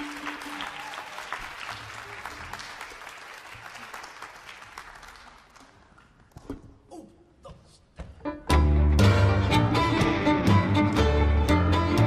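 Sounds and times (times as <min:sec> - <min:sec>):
audience applause: 0:00.0 - 0:05.9.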